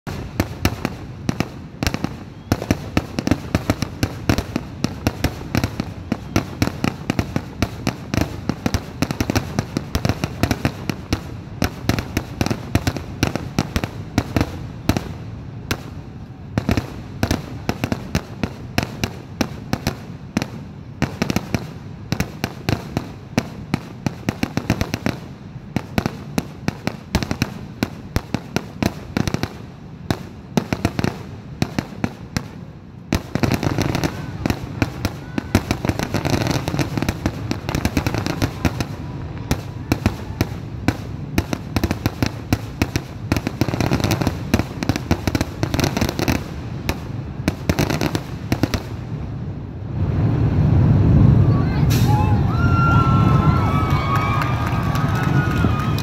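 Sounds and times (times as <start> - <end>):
fireworks bursting: 0.1 - 56.0.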